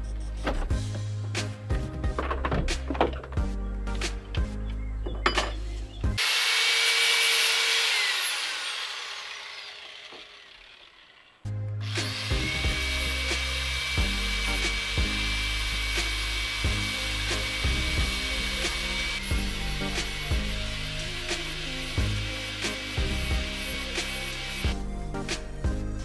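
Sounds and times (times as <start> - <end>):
background music: 0.0 - 6.2, 11.4 - 26.0
angle grinder running: 6.2 - 24.9
grinder winding down whine: 6.2 - 24.9.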